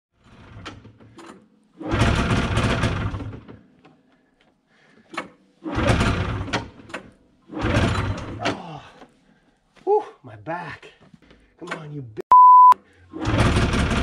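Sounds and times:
engine cranking without catching: 0.2 - 3.9, 5.0 - 8.7, 13.1 - 14.0
recoil starter pulls: 0.2 - 3.9, 5.0 - 8.6, 13.1 - 14.0.

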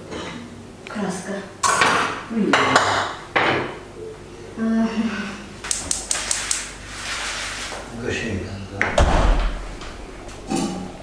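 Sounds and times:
sheets rustling and crackling: 6.1 - 8.1.

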